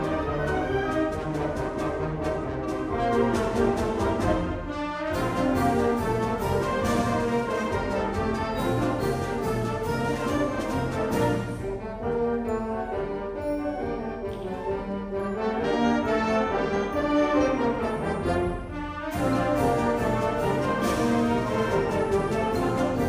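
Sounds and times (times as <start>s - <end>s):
concert band playing: 0.0s - 23.0s.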